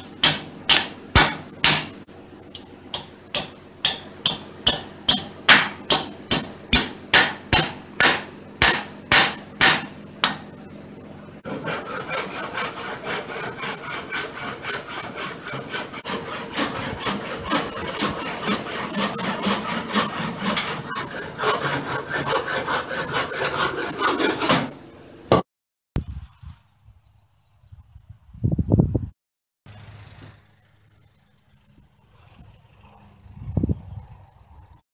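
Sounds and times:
handsaw cutting branch: 0:00.0 - 0:10.4, 0:11.4 - 0:24.8
hammer striking metal: 0:00.0 - 0:10.5.

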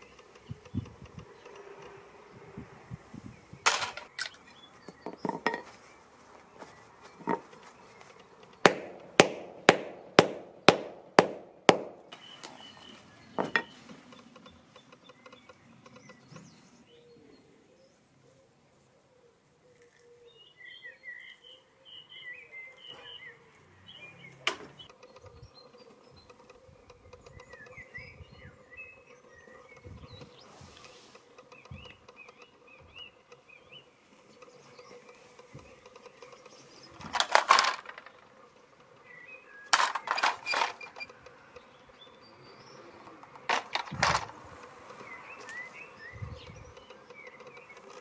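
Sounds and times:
hammer striking metal parts: 0:03.7 - 0:04.4, 0:05.0 - 0:05.7, 0:07.2 - 0:07.5, 0:08.6 - 0:12.2, 0:13.4 - 0:13.7, 0:39.7 - 0:41.1, 0:43.4 - 0:44.3
faint bird chirps: 0:12.1 - 0:37.1.

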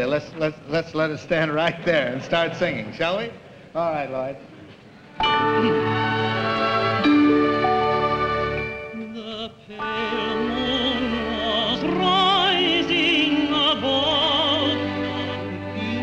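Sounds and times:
instrumental accompaniment: 0:05.2 - 0:16.0
man singing operatically: 0:09.0 - 0:16.0.

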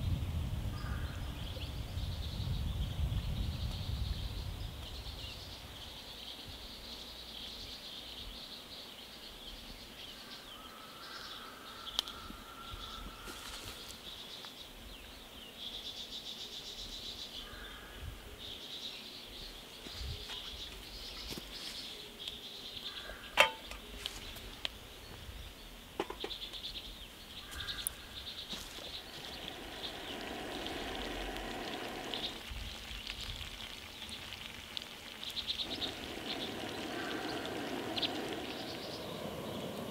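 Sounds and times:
high insect chorus: 0:00.8 - 0:39.9
short bird calls: 0:10.3 - 0:14.0, 0:27.4 - 0:32.5, 0:35.5 - 0:39.9.

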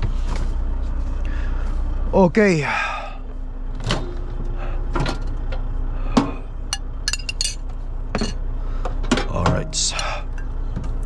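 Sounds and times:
steady low hum: 0:00.0 - 0:11.0
dishes clattering: 0:07.1 - 0:07.6.

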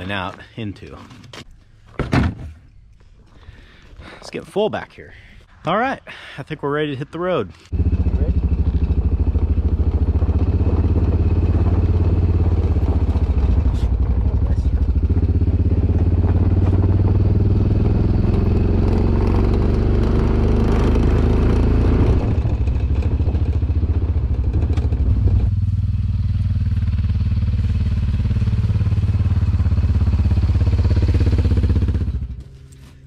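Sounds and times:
utility vehicle engine running: 0:07.7 - 0:33.0.

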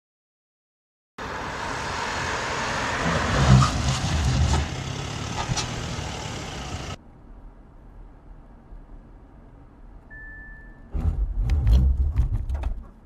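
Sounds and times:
car low rumble: 0:01.2 - 0:13.0
tyre and wind noise: 0:10.9 - 0:13.0.

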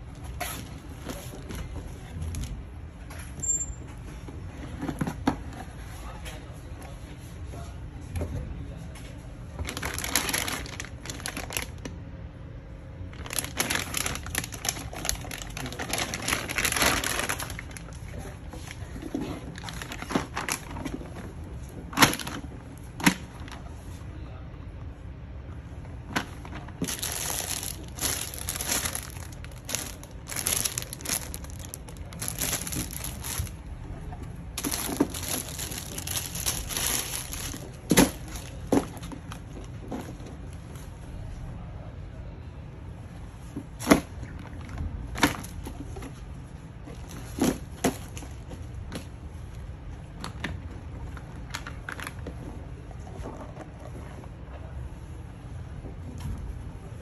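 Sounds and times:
plastic packaging crinkling: 0:09.6 - 0:11.9, 0:13.1 - 0:21.2, 0:21.9 - 0:23.6, 0:26.1 - 0:33.7, 0:34.5 - 0:39.6.

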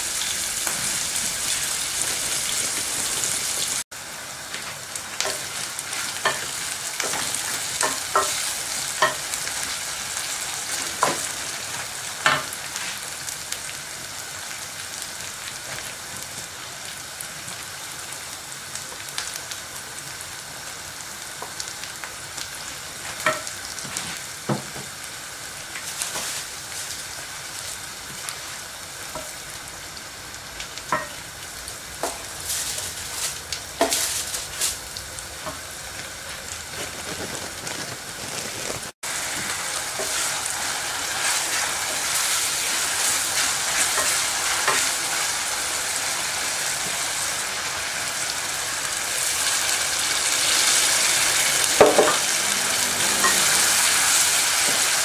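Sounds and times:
onions sizzling in a pan: 0:00.0 - 0:55.0
wooden spoon scraping a pan: 0:40.0 - 0:40.5.

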